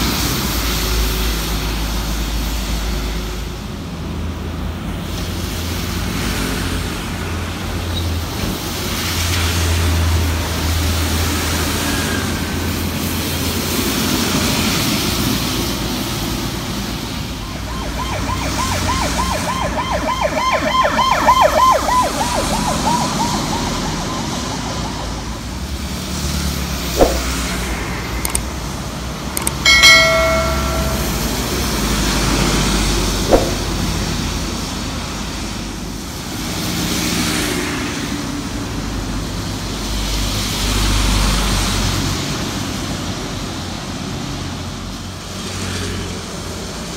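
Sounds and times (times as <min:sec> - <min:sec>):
traffic on wet road: 0:00.0 - 0:29.7, 0:32.2 - 0:46.9
warbling siren: 0:17.2 - 0:26.0, 0:29.7 - 0:31.6, 0:33.3 - 0:33.8.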